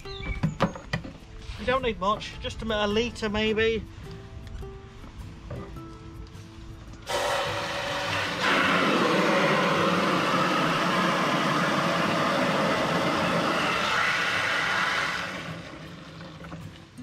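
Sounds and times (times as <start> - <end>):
hose water pouring into plastic tank: 7.1 - 16.8.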